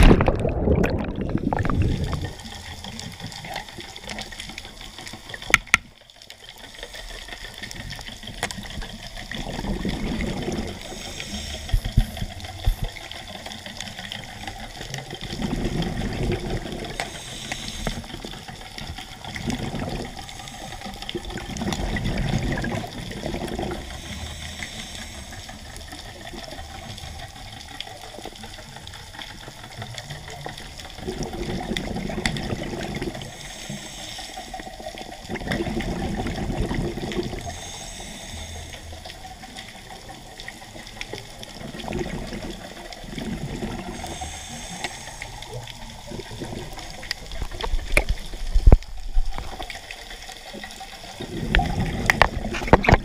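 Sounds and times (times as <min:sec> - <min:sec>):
regulator bubbles exhaled: 0:00.0 - 0:05.6, 0:06.8 - 0:53.0
underwater hiss: 0:00.0 - 0:05.6, 0:06.2 - 0:53.0
rush of bubbles underwater: 0:00.0 - 0:53.0.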